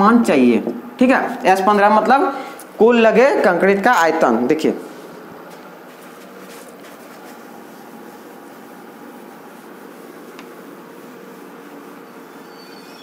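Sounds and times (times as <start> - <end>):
fan-like room hum: 0.0 - 13.0
duster rubbing whiteboard: 5.8 - 13.0.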